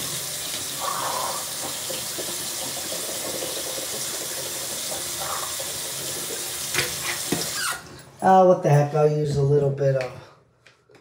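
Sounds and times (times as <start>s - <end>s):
tap running into sink: 6.0s - 7.8s.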